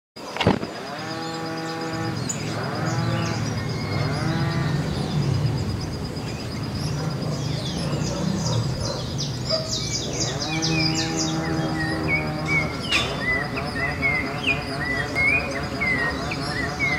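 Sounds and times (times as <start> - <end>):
small birds chirping: 0.2 - 16.9
cattle mooing: 0.8 - 5.2, 7.0 - 16.9.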